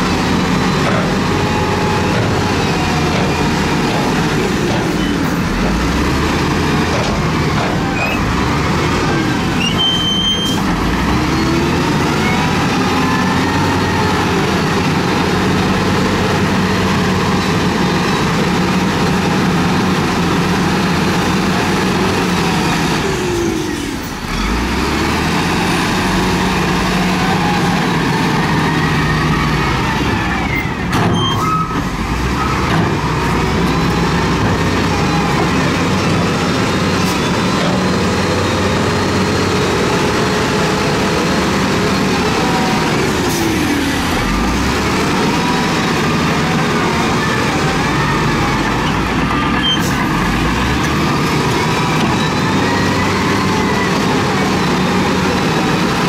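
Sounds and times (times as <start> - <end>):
heavy diesel engine under load: 0.0 - 56.0
loader pushing rock: 0.0 - 56.0.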